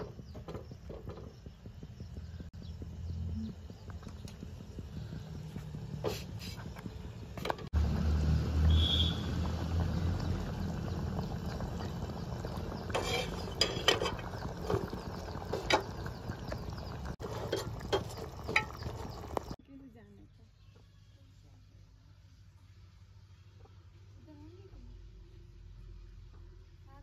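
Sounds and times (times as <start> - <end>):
low rumble of gas stove: 0.0 - 7.7, 8.7 - 19.6
curry bubbling with pops: 8.7 - 19.6.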